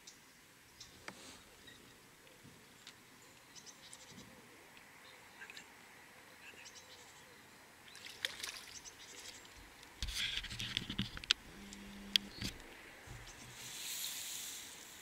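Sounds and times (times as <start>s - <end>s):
water splashing and lapping: 7.9s - 9.6s.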